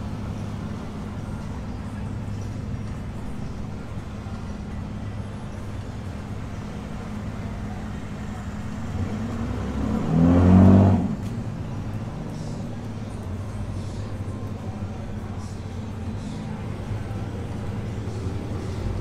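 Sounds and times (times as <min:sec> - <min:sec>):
low rumble of street traffic: 0:00.0 - 0:19.0
passing vehicle engine revving: 0:06.0 - 0:14.3.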